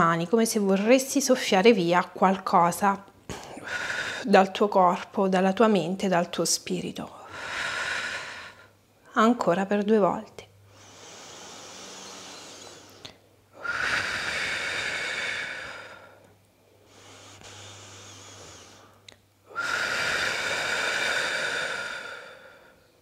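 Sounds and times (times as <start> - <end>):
woman blowing hard breaths: 10.6 - 22.9.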